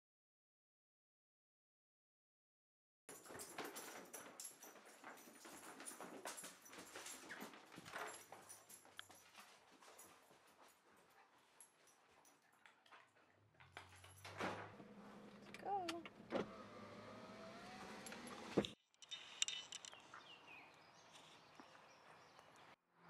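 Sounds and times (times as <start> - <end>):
light clicks and rustles: 3.1 - 16.2
motor whine: 16.2 - 18.8.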